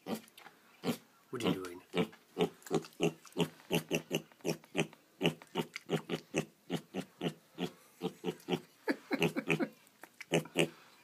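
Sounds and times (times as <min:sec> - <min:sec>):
pig grunting: 0:00.8 - 0:08.6.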